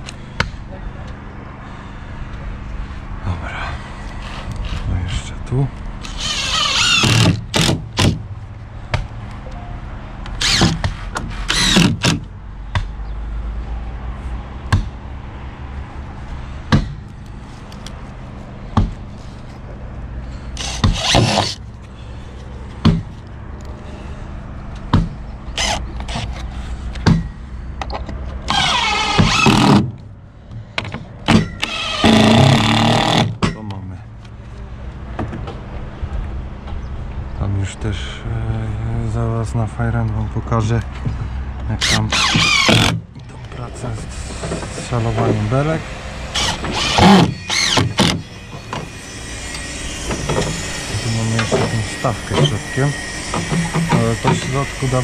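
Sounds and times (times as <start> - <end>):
drill-driver whirring: 6.0 - 8.1, 10.4 - 10.8, 11.5 - 12.2, 20.6 - 21.6, 25.6 - 26.4, 28.5 - 29.8, 31.6 - 33.3, 41.8 - 43.0, 46.3 - 50.8
sharp knocks: 16.7 - 17.0.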